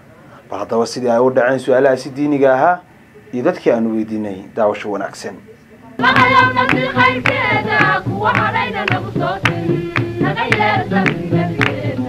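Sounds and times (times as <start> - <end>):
percussion hits: 6.0 - 12.0
person singing: 6.0 - 12.0.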